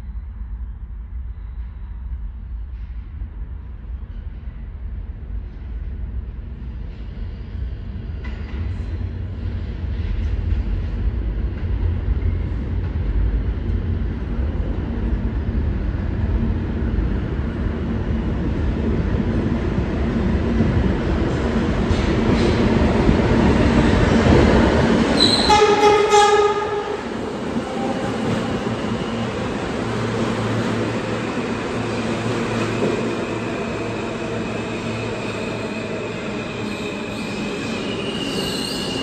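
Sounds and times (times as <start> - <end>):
subway train rumble: 0.0 - 39.0
train horn: 25.2 - 28.7.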